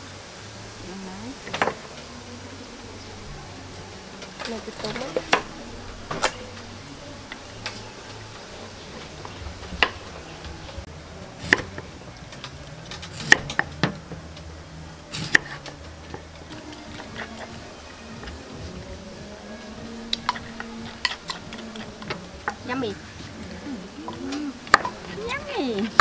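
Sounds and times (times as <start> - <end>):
knife chopping on wooden board: 11.4 - 11.8.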